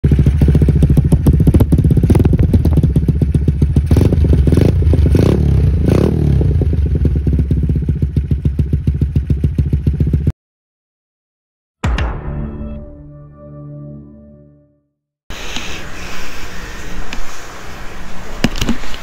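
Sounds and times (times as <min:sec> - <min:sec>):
motorcycle engine idling: 0:00.0 - 0:10.3
engine revving blips: 0:03.8 - 0:06.8.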